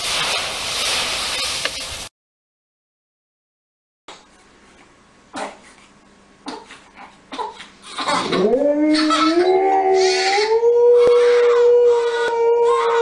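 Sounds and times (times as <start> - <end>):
baby crying: 6.5 - 13.0
dog howling: 8.2 - 13.0.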